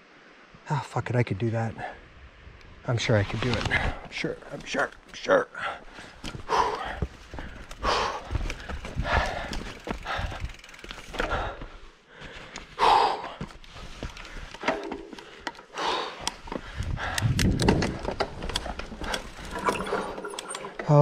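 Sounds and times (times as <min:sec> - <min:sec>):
person breathing: 0:05.5 - 0:17.4
bike ticking and rattling: 0:06.2 - 0:21.0.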